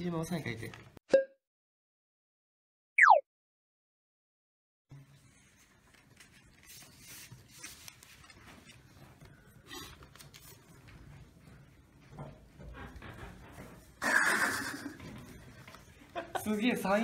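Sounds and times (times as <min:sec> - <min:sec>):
paper being handled: 0:05.2 - 0:11.1.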